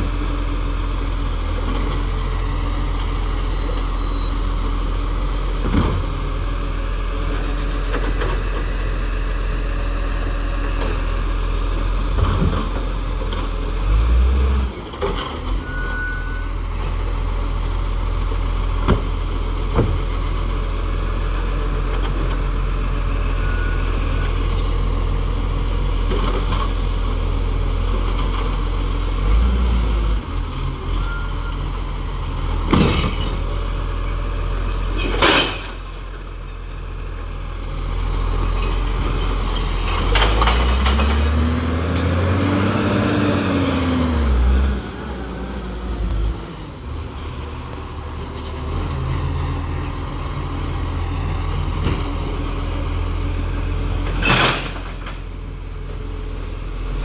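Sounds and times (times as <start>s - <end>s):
truck diesel engine running: 0.0s - 15.5s.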